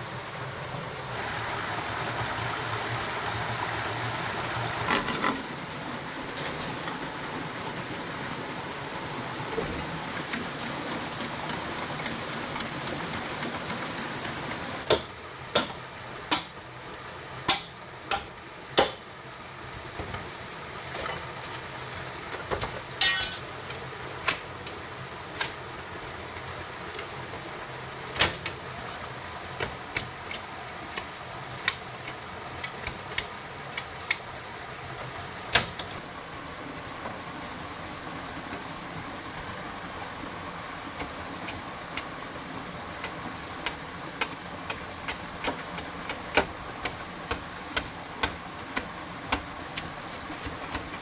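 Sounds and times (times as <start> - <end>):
forest stream rushing: 0.0 - 51.0
sharp knocks on bamboo: 14.8 - 16.6, 17.5 - 19.0, 35.5 - 35.9, 43.6 - 51.0.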